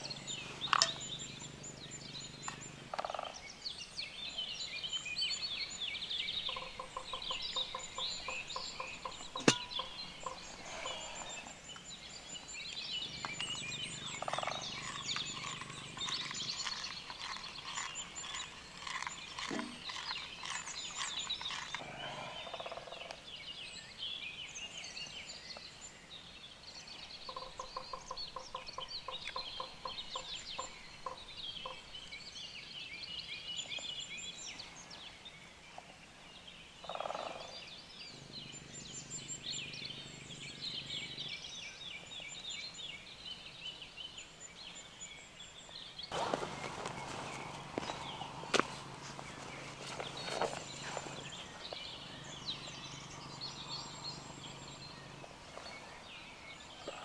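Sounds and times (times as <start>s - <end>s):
birds chirping and calling: 0.0s - 57.0s
rapid low bird notes: 5.7s - 11.7s, 46.1s - 57.0s.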